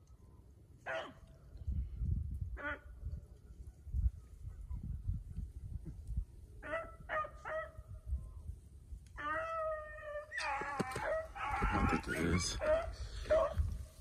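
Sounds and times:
hounds baying: 0.8s - 1.2s, 9.2s - 13.7s.

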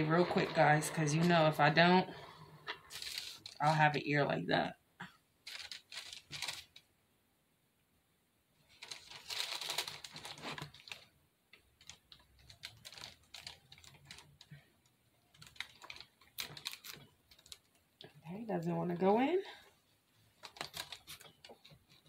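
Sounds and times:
rustling: 0.0s - 3.8s, 5.4s - 6.9s, 8.6s - 18.2s, 19.5s - 22.0s
small clicks and crackles: 2.6s - 3.6s, 5.4s - 6.9s, 8.7s - 18.4s, 19.6s - 22.0s.

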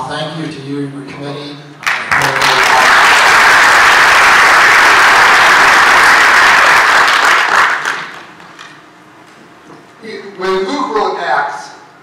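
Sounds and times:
congregation applauding: 1.8s - 8.4s.

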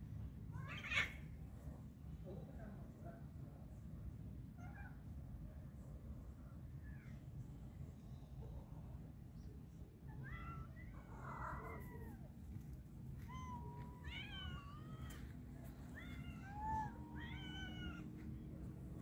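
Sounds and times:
cats meowing: 10.2s - 12.3s, 13.2s - 18.3s
low steady rumble: 10.7s - 19.0s.

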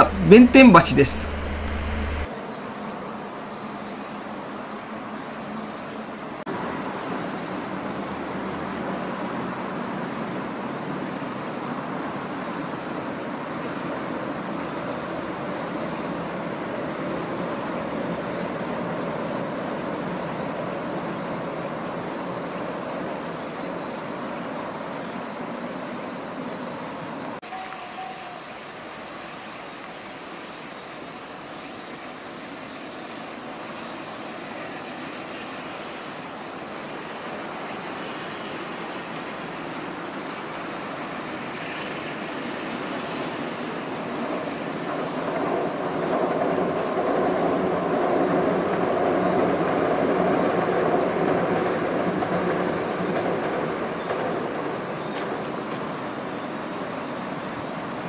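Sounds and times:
distant train rumble: 0.0s - 2.3s, 32.0s - 58.0s
river rapids rushing: 0.0s - 2.3s.

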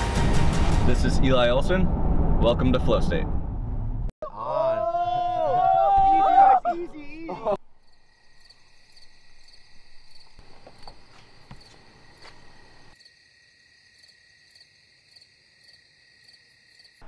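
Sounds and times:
low background rumble: 0.9s - 4.1s
crickets chirping: 7.4s - 17.0s.

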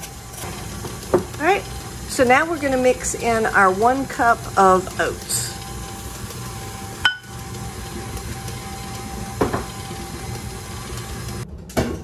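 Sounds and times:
stand mixer motor running: 0.0s - 11.4s
glass bowl clinking on steel bowl: 7.1s - 7.3s.

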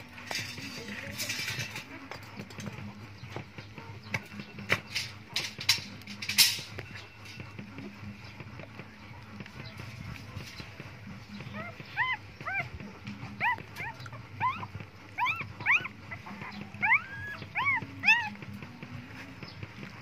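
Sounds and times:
newborn puppies whimpering: 11.1s - 19.4s.

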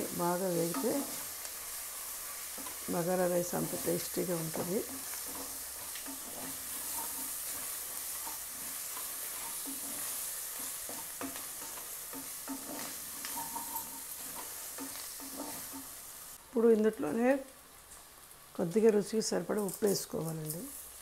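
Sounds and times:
food sizzling in oil: 0.0s - 21.0s
wooden spatula scraping a pot: 0.5s - 16.0s.

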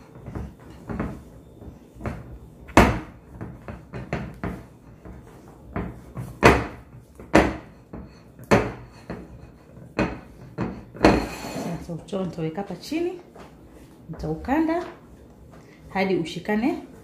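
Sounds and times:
dough thudding against glass bowl: 0.2s - 11.4s.

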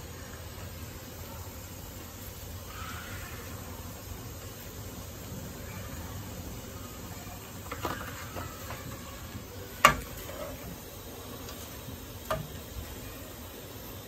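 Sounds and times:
fish sizzling in oil: 0.0s - 14.0s.

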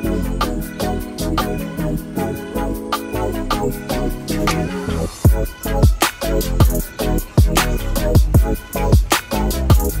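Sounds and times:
deep kick drums: 5.3s - 6.0s, 6.6s - 9.1s.

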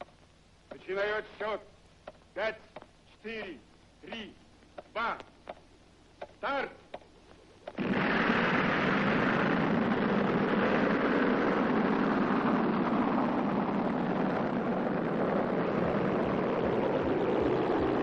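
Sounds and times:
spaceship engine rushing noise: 7.8s - 18.0s.

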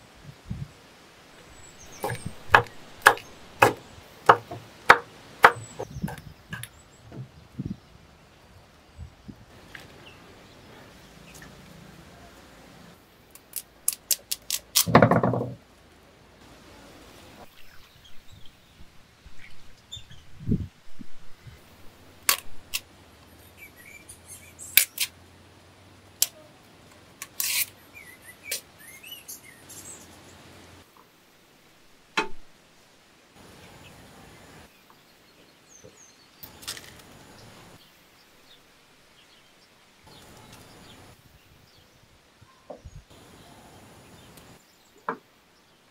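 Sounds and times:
birds chirping faintly: 0.6s - 13.3s, 16.3s - 31.0s, 33.4s - 45.9s.

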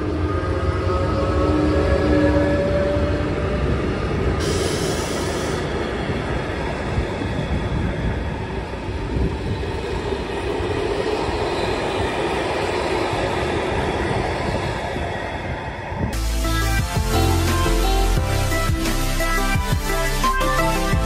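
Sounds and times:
train wheels rumbling on rails: 0.0s - 16.2s.

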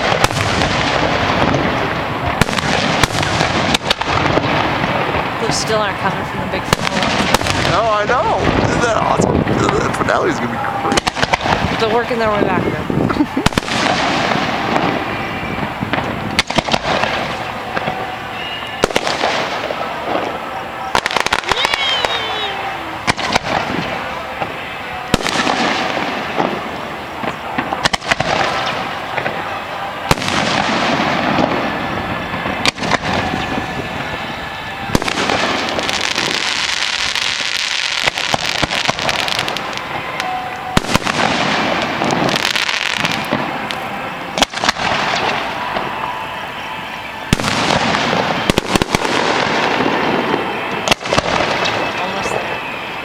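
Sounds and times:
continuous fireworks hiss: 0.0s - 53.0s
fireworks bursting with sharp bangs: 0.0s - 53.0s.

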